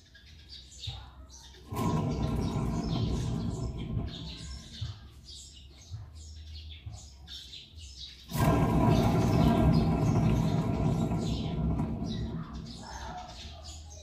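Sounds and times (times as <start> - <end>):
wheel bearing rumbling: 1.6 - 5.2, 8.2 - 13.7.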